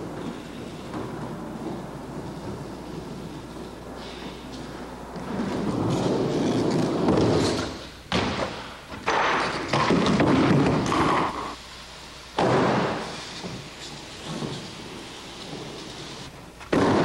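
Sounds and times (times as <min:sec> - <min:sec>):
skateboard wheels rolling: 0:00.0 - 0:11.6, 0:12.4 - 0:17.0
skateboard slamming down: 0:05.3 - 0:11.5, 0:12.4 - 0:13.7, 0:16.7 - 0:17.0.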